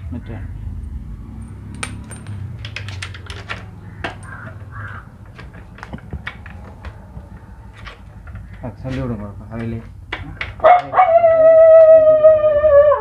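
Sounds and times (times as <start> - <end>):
tools tapping metal parts: 1.4 - 10.9.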